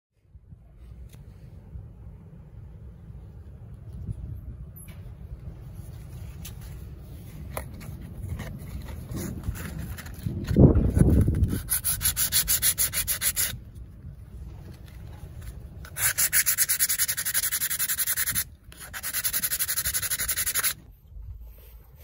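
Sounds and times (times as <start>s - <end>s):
sandpaper rubbing on wood: 11.1s - 13.6s, 15.9s - 20.8s.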